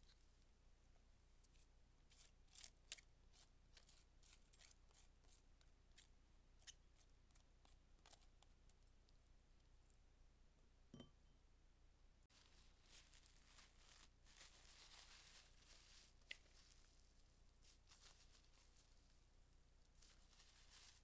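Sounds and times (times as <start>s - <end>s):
cabbage rustling and crackling: 12.3s - 19.2s, 19.9s - 21.0s.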